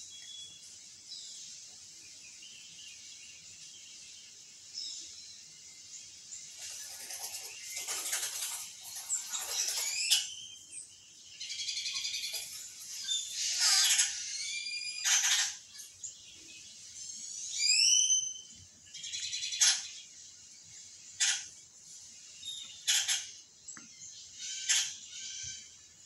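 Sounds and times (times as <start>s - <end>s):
bird calls on television: 13.3s - 15.7s, 19.2s - 20.0s, 21.2s - 21.6s, 22.7s - 23.4s, 24.4s - 25.8s.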